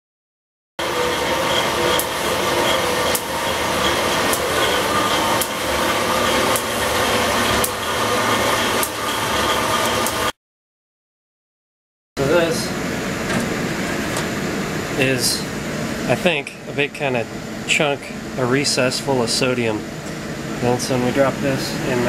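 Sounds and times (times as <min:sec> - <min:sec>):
machine running: 0:00.8 - 0:10.4.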